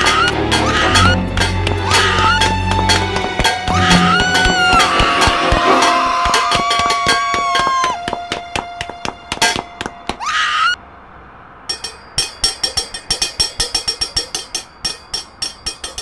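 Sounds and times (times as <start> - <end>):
short shrill cry: 3.6 - 8.0.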